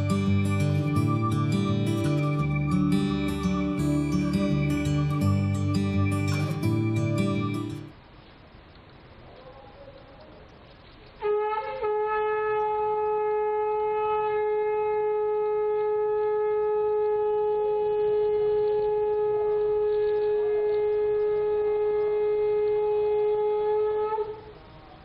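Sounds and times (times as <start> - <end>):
conch shell long note: 11.2 - 25.0.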